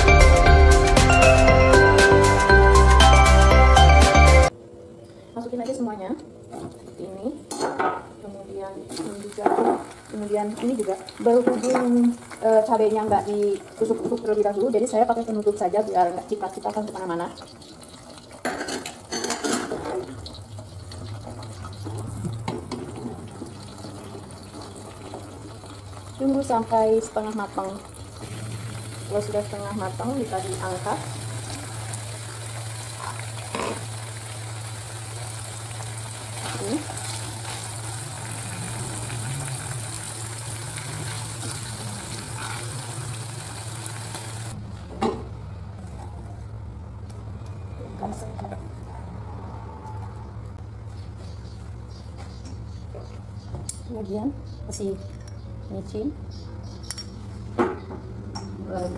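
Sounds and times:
food sizzling in oil: 8.9 - 44.6.

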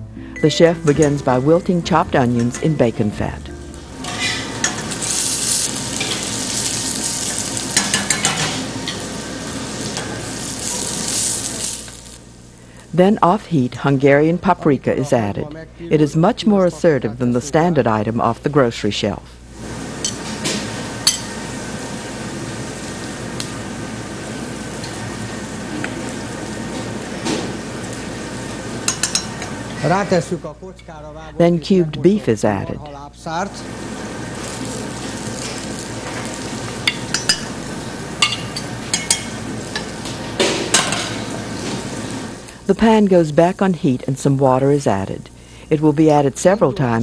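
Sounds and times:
frying hiss: 0.1 - 30.6, 31.6 - 47.0
onions sizzling in a pan: 3.6 - 12.6, 19.5 - 30.0, 33.6 - 44.9.

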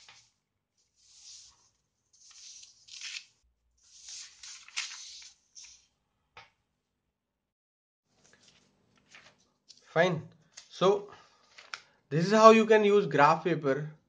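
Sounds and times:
paper sliding over cutting mat: 0.0 - 3.2, 3.8 - 5.8.

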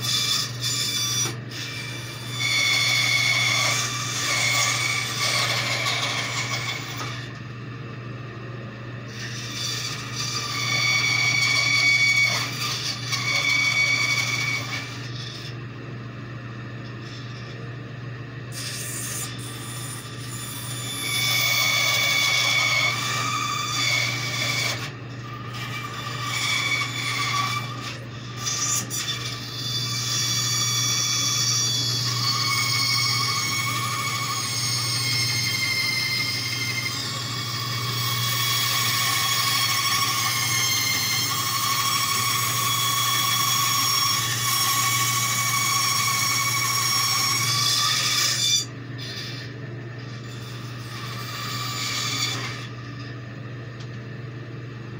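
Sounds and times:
bandsaw cutting wood: 0.0 - 7.4, 9.1 - 15.6, 18.5 - 52.8.

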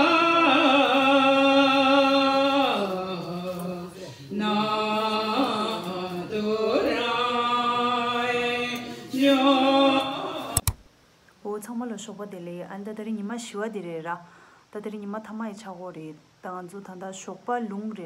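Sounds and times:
group chanting in unison: 0.0 - 10.6.

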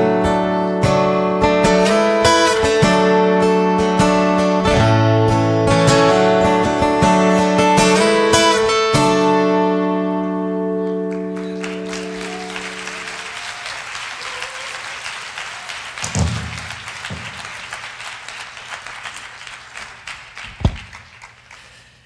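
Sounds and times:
audience applauding: 11.1 - 22.0.

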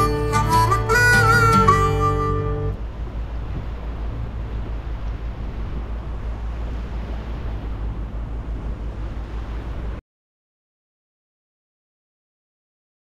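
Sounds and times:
boat engine rumble: 0.0 - 10.0
wind noise on microphone: 0.0 - 10.0.

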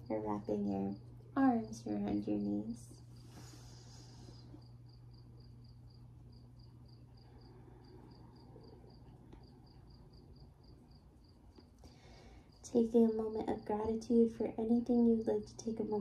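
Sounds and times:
low steady hum: 0.0 - 16.0
cricket chirping: 4.2 - 12.6.

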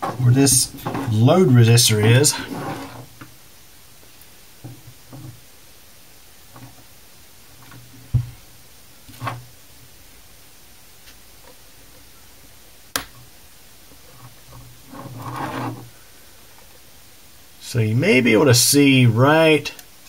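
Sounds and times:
soft knocks and rustles of wires: 0.0 - 1.3, 4.6 - 5.4, 6.5 - 6.9, 7.6 - 9.5, 13.9 - 15.9.

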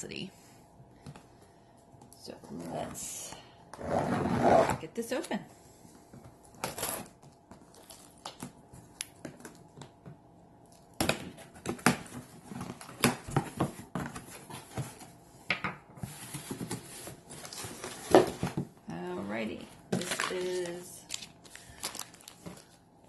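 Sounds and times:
cardboard scraping and rustling: 16.0 - 18.6.

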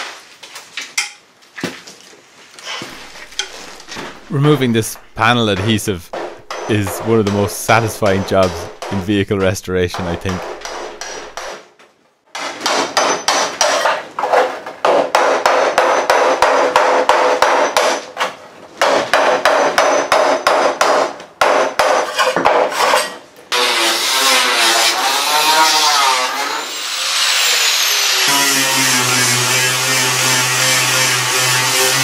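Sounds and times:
hammer striking metal scraper: 2.8 - 11.6, 12.4 - 23.2, 28.3 - 32.0
angle grinder grinding steel: 23.6 - 32.0.

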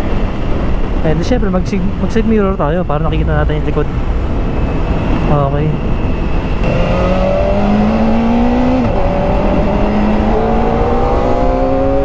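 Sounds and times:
wind noise: 0.0 - 12.0
motorcycle accelerating through gears: 6.4 - 12.0.

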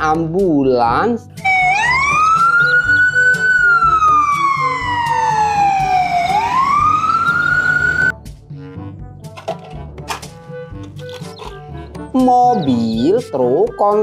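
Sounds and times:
ambulance siren wailing: 1.4 - 8.1.

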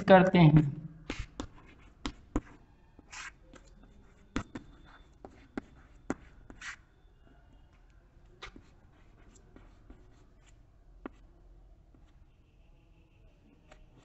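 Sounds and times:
chalk tapping on chalkboard: 1.0 - 6.8
chalk scratching: 1.1 - 7.0.

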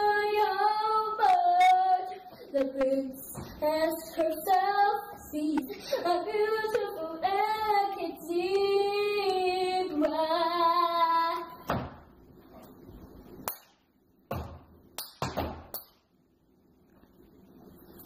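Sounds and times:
girl singing: 0.0 - 11.7
hand claps: 13.4 - 13.8, 15.0 - 16.0.

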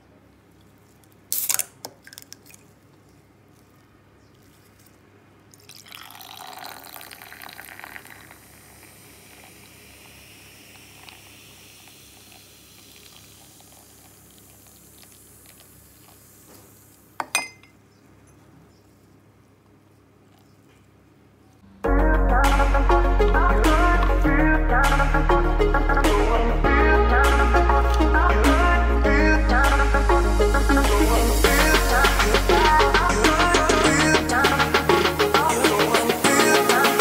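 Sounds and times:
drink fizzing: 0.7 - 17.6
drink pouring over ice: 4.4 - 17.0
glass clink: 17.2 - 17.8.

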